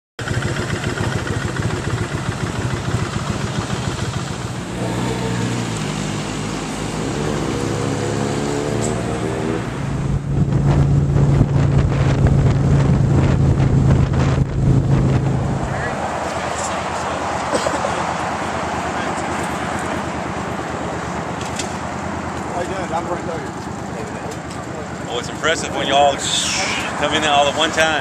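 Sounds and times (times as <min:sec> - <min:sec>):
motorcycle engines running: 0:00.2 - 0:28.0
wind buffeting microphone: 0:09.7 - 0:16.2.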